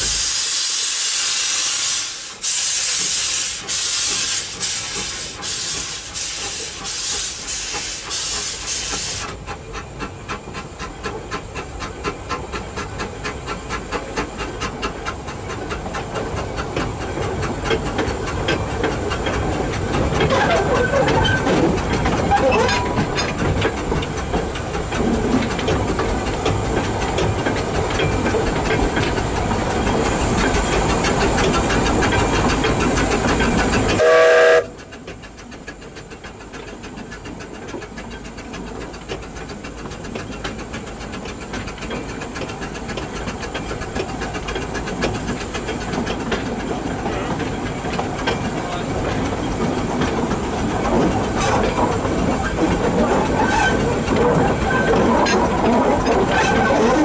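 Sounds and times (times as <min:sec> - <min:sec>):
steam locomotive working: 0:00.0 - 0:57.0
steam whistle: 0:34.0 - 0:34.8.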